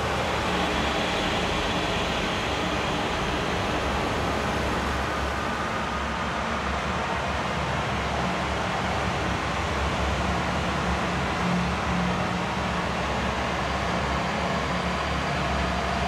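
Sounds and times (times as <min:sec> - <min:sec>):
mechanical rumble and hiss: 0:00.0 - 0:06.2.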